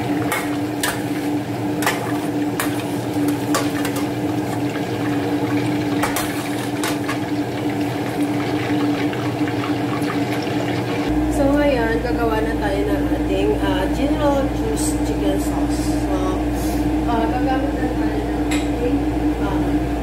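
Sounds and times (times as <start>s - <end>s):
chicken frying in oil: 0.0s - 11.1s.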